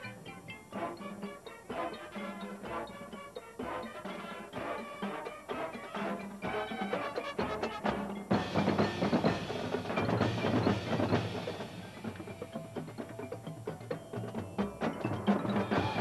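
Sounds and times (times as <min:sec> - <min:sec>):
marching band playing: 0:00.0 - 0:16.0.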